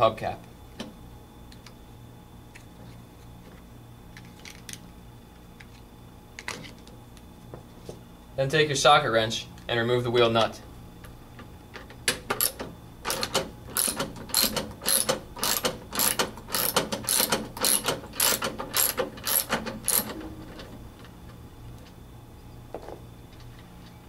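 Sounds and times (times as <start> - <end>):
socket wrench ratcheting clicks: 12.3 - 20.1.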